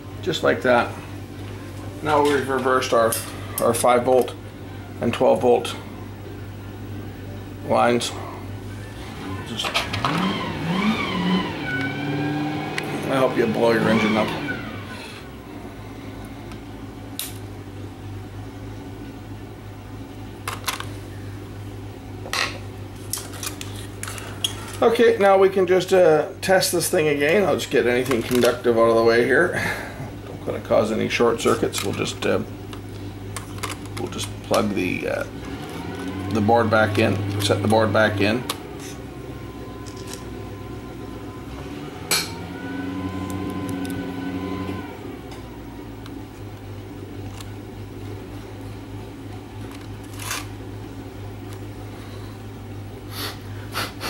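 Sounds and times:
car engine idling hum: 0.0 - 54.0.

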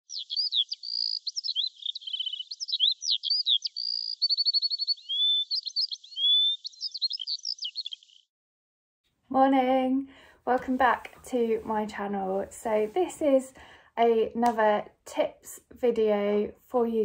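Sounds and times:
songbird singing whistles and trills: 0.1 - 8.2.

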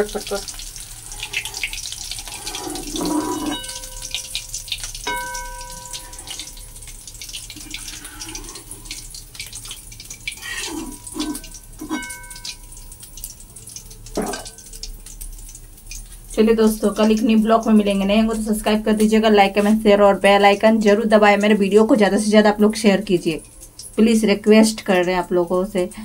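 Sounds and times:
hot oil crackling: 0.0 - 26.0
metal spoon clinking on pan: 2.9 - 8.0, 10.7 - 13.4, 14.2 - 14.8.

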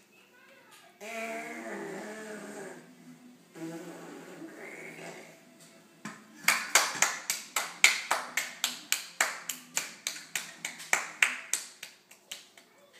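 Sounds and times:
children clapping hands: 6.4 - 12.7.

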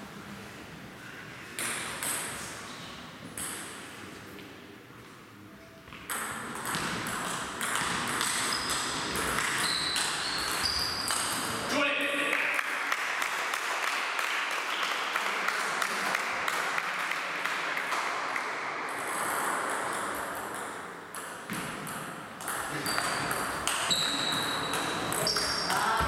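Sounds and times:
table tennis ball hits: 1.6 - 2.4, 6.0 - 11.7, 16.5 - 26.0
table tennis balls bouncing: 1.6 - 4.6, 5.8 - 11.7, 16.2 - 26.0.

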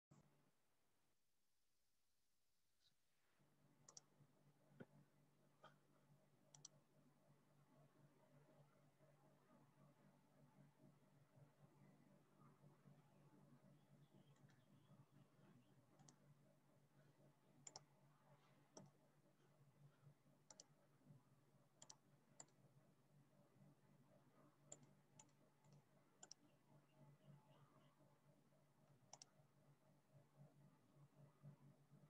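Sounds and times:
faint low hum: 2.8 - 32.0
faint computer mouse clicks: 3.8 - 4.1, 6.5 - 6.8, 15.9 - 16.3, 17.6 - 17.9, 20.5 - 20.8, 21.8 - 22.6, 24.7 - 26.5, 29.1 - 29.4.

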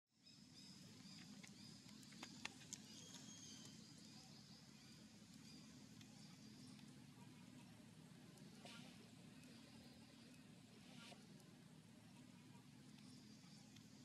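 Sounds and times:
high bird chirps: 0.2 - 6.9
low steady hum: 0.2 - 14.0.

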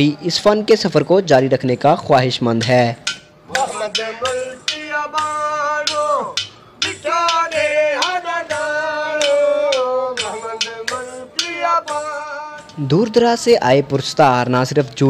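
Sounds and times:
sharp percussion strokes: 1.8 - 14.2
man singing: 3.5 - 13.6.

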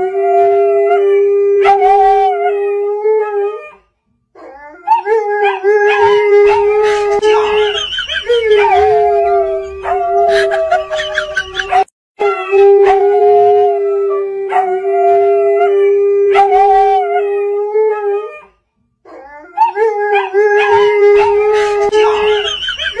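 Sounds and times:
dogs howling: 4.4 - 18.5, 19.1 - 23.0.

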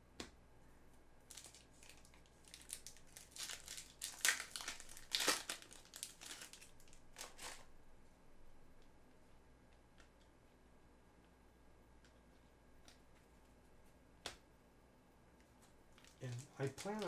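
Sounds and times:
foil wrapper tearing and crinkling: 1.3 - 7.7, 16.0 - 17.0.

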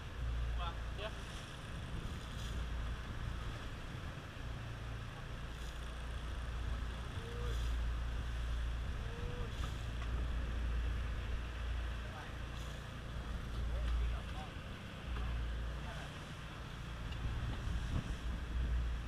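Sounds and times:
boat engine humming: 0.0 - 19.0.

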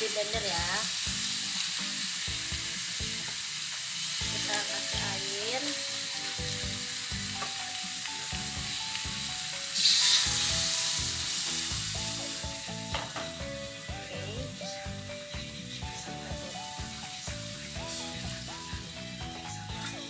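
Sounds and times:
food sizzling in wok: 0.0 - 20.0
water poured into wok: 9.7 - 12.0.

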